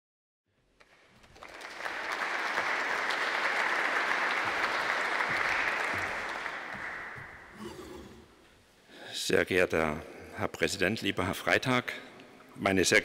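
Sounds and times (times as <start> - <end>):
audience applauding: 0.8 - 8.1.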